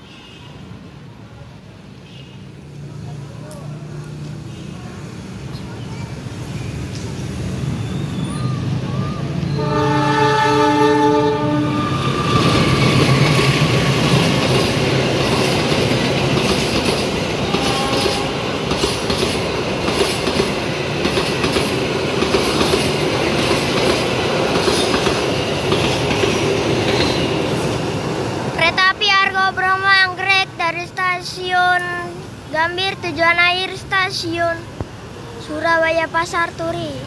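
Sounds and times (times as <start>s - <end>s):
train rumbling past: 4.2s - 37.0s
train horn: 9.5s - 12.2s, 17.4s - 18.5s.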